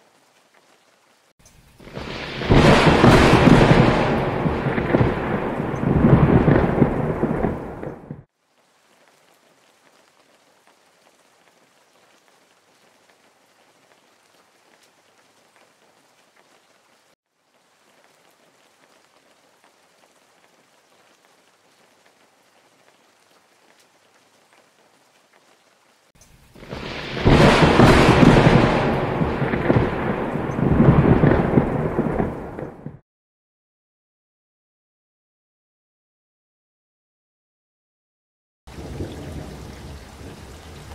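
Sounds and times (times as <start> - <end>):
faint steady rain: 0.0 - 33.0, 38.7 - 40.9
house collapsing into river: 1.8 - 8.0, 26.6 - 32.6.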